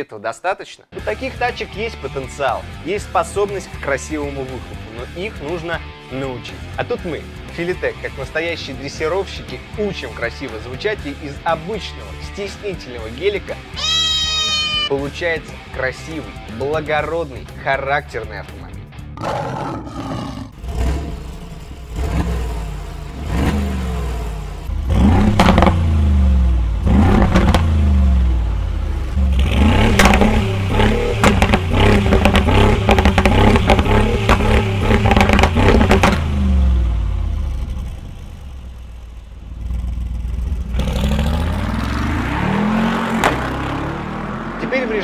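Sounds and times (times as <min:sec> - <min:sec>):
car accelerating away: 0:20.6 - 0:45.0
car engine revving: 0:20.6 - 0:45.0
exhaust popping and crackling: 0:24.6 - 0:41.8.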